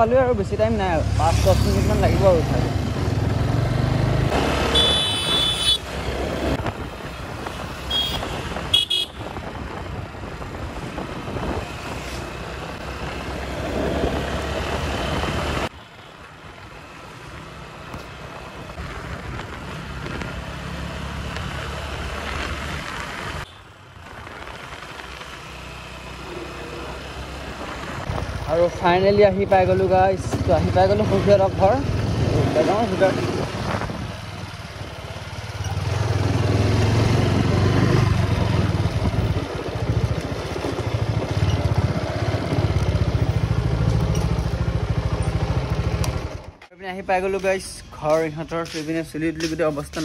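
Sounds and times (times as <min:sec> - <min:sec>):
road traffic noise: 0:00.0 - 0:50.0
vehicle horns honking: 0:04.6 - 0:05.9, 0:07.9 - 0:09.3.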